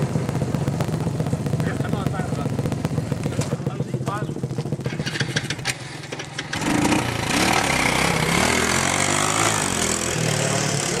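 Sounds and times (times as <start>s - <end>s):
small engine revving: 4.8s - 11.0s.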